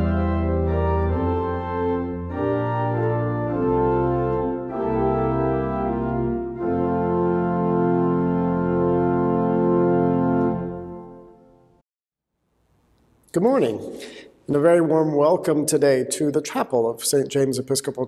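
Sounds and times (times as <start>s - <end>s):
organ playing sustained chords: 0.0s - 11.8s.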